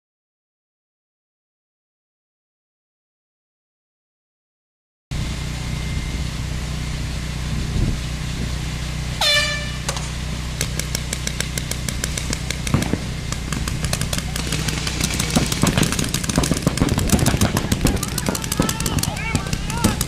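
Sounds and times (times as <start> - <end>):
air horn blast: 9.2 - 10.0
paintball markers firing: 9.9 - 20.0
low rumble: 12.2 - 20.0.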